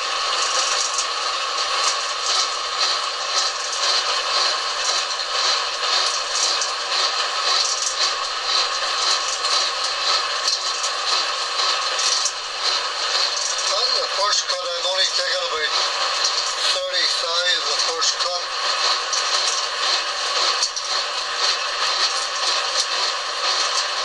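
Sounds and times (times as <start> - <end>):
lathe whining: 0.0 - 24.0
scratchy cutting noise: 12.7 - 24.0.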